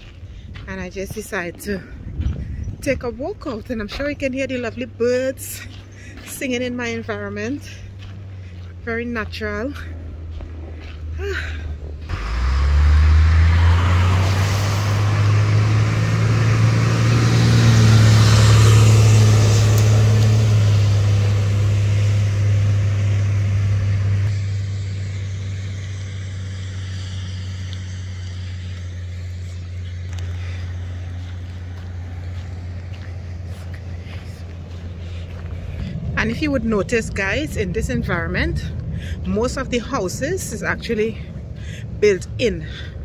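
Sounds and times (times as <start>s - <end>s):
truck engine low rumble: 0.0s - 43.0s
tyres hissing on wet road: 12.1s - 32.7s.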